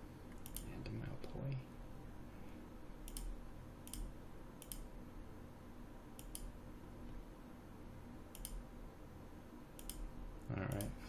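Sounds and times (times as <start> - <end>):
faint low hum: 0.0 - 11.0
computer mouse clicks: 0.3 - 0.7, 3.0 - 4.9, 6.2 - 6.5, 8.3 - 8.6, 9.8 - 10.1, 10.7 - 11.0.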